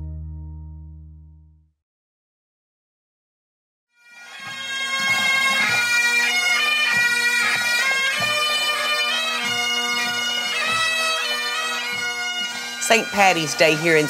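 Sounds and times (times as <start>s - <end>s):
bagpipes with drones: 4.0s - 14.0s
drumbeats: 4.4s - 14.0s.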